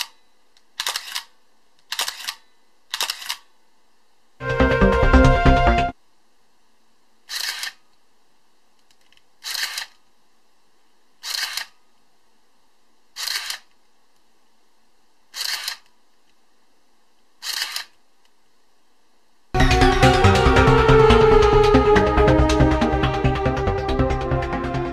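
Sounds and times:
camera motor winding film: 0.8s - 1.3s, 1.9s - 3.4s, 7.3s - 7.8s, 9.4s - 10.0s, 11.2s - 11.7s, 13.2s - 13.7s, 15.3s - 15.9s, 17.4s - 18.0s.

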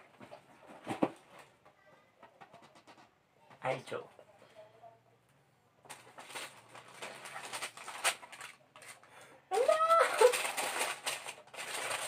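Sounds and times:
tissue paper rustling: 5.9s - 12.0s.

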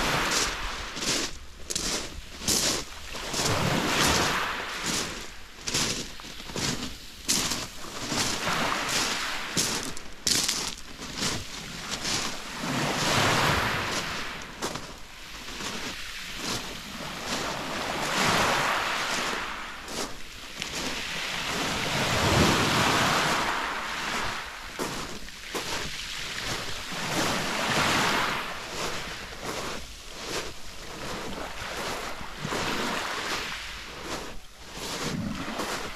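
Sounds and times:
waves washing onto pebbles: 0.0s - 35.9s
footsteps crunching on pebbles: 0.2s - 17.5s, 19.1s - 21.0s, 24.8s - 25.9s, 28.6s - 31.9s, 34.0s - 35.9s.

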